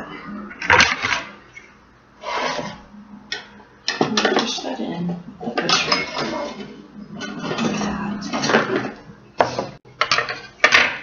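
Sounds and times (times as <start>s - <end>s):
metal pan clattering and scraping: 0.6s - 1.4s, 5.4s - 11.0s.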